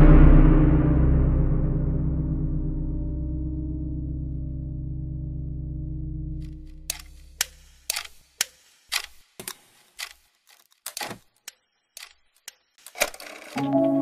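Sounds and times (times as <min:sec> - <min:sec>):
sharp mechanical clicks: 0:06.8 - 0:13.6.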